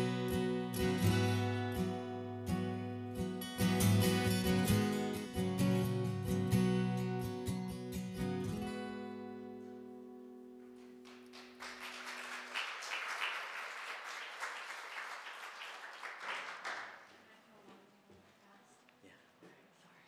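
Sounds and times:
acoustic guitar strumming: 0.0 - 11.0
applause: 10.7 - 17.5.

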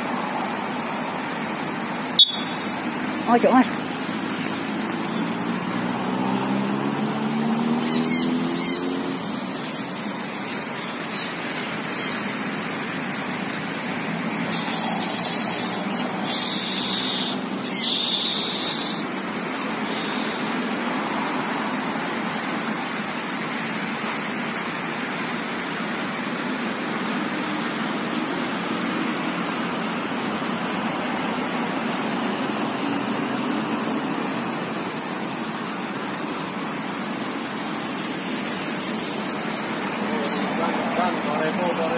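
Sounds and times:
steady background noise: 0.0 - 41.9
parrots screeching: 7.8 - 9.0, 11.9 - 12.3, 15.3 - 19.0, 40.2 - 40.6.

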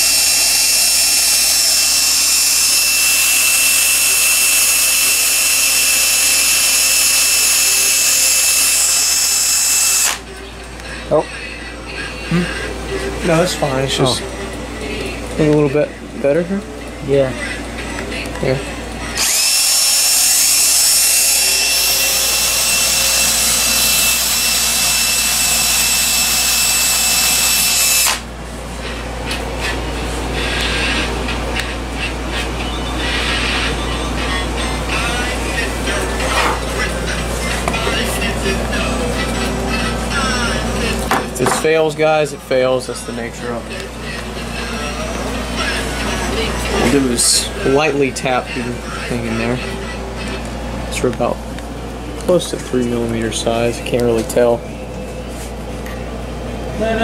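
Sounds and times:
cordless drill whining: 0.0 - 10.3, 19.2 - 28.3.

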